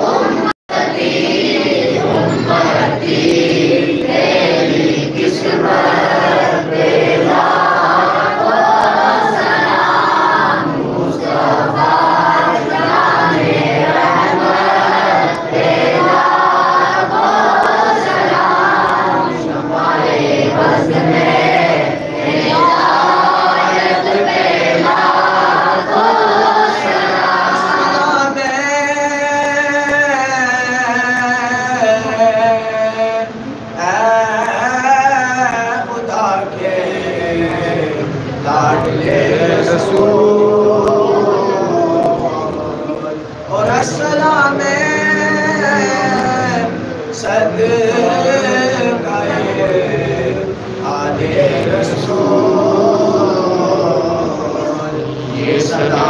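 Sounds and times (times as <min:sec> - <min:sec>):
men chanting a hymn in unison: 0:00.0 - 0:56.0
held vocal tone: 0:35.1 - 0:56.0.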